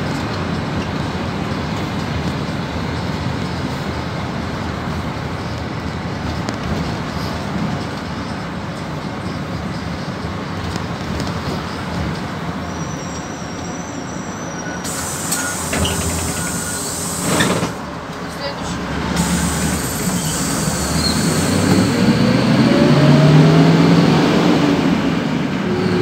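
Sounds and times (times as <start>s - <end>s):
bus engine rumble: 0.0s - 26.0s
high hiss: 14.9s - 17.7s, 19.2s - 21.9s.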